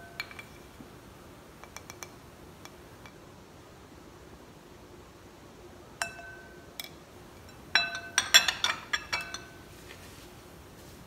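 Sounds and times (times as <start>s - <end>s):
spoon clinking against bowl: 0.0s - 0.6s, 6.0s - 9.6s.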